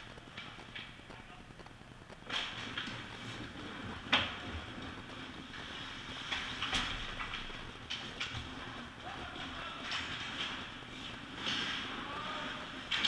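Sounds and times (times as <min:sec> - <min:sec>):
hockey sticks and puck clacking: 0:05.5 - 0:13.0.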